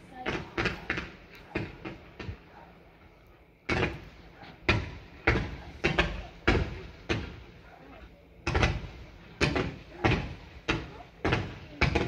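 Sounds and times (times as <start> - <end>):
fireworks exploding: 0.0 - 2.8, 3.6 - 12.0.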